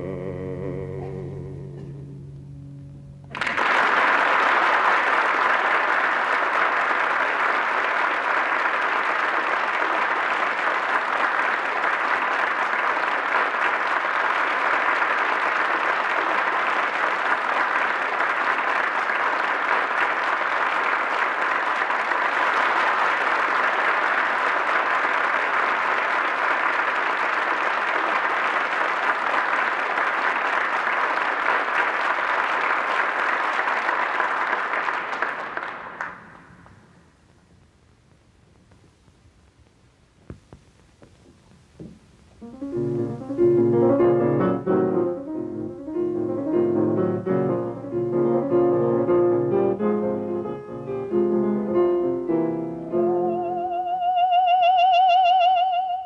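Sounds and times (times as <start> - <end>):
large audience applauding: 3.3 - 36.8.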